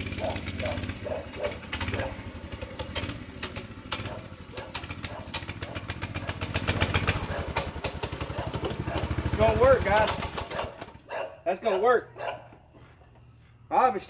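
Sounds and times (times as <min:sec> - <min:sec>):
minibike engine running: 0:00.0 - 0:11.2.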